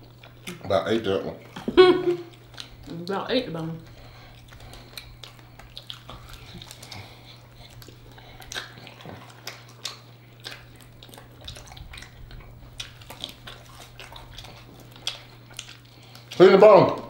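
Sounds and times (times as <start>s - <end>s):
chewing and sucking: 0.0s - 0.8s, 1.4s - 17.0s
steady low hum: 0.0s - 17.0s
wet lip smacks: 3.8s - 16.4s.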